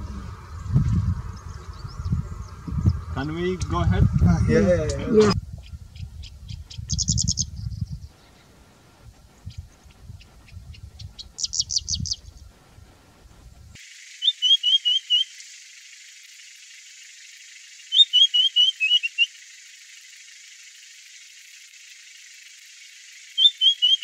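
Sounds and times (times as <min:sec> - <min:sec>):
lark whistled song phrases: 0:14.2 - 0:15.3, 0:17.9 - 0:19.3, 0:23.4 - 0:24.0.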